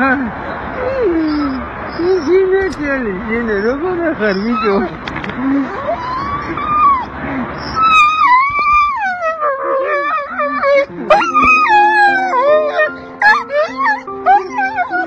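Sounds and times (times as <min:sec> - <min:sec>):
dog howling and whining: 0:05.6 - 0:15.0
background music: 0:10.9 - 0:15.0.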